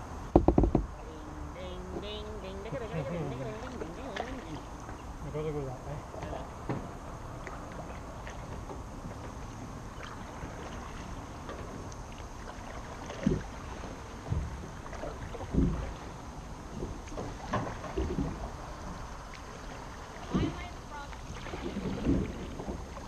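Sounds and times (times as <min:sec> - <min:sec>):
kayak paddle splashing water: 0:06.5 - 0:23.0
wind rumble on microphone: 0:13.0 - 0:23.0.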